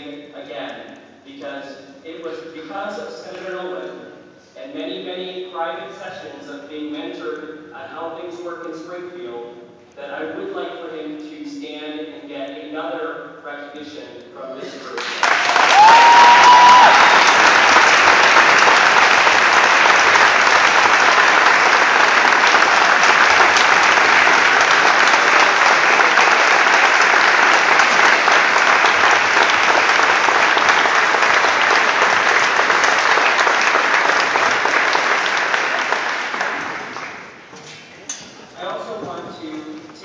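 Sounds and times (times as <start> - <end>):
audience clapping: 14.9 - 37.5.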